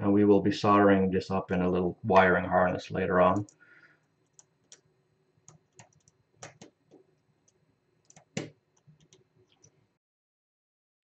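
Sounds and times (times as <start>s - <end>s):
fingers clicking wires on terminal: 5.5s - 7.0s, 8.1s - 9.6s.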